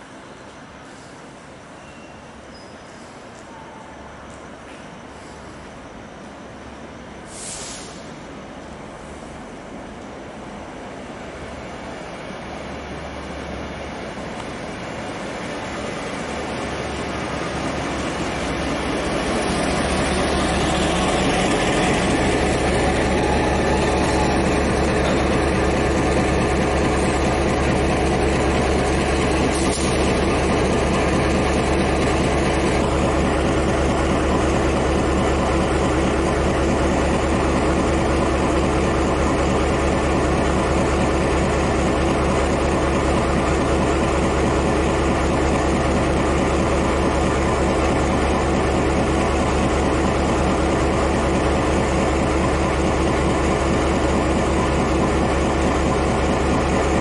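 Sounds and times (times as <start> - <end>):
diesel locomotive engine idling: 4.4 - 57.0.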